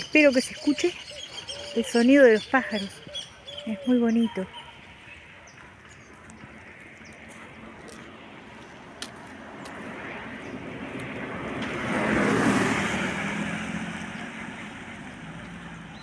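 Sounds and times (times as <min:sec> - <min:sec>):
car driving past: 0:09.3 - 0:16.0.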